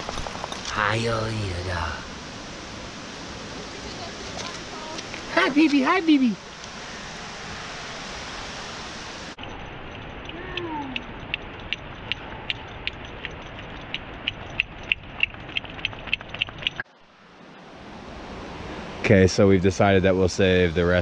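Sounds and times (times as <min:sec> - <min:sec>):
waterfall rushing: 0:00.7 - 0:09.4
sharp clicks: 0:10.2 - 0:16.8.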